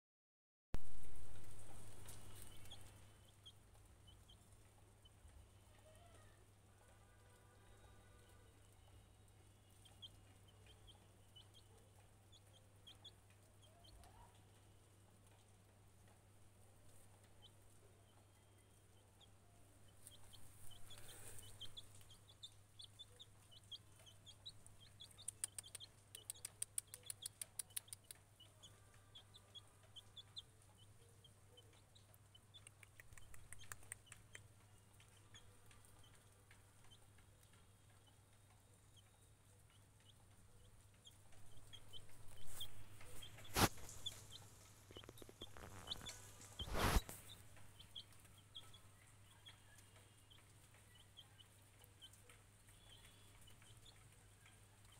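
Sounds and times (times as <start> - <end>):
chick peeping: 0.8 - 6.4, 9.7 - 14.6, 16.9 - 54.9
rapid ticks: 20.1 - 28.4, 31.7 - 48.8.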